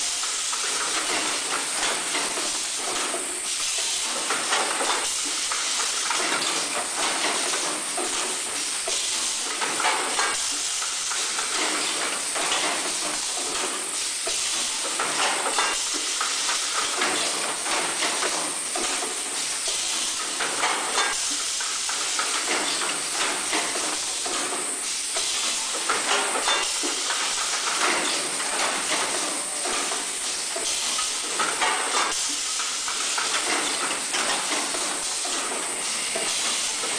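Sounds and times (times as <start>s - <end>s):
machine air hiss: 0.0s - 36.9s.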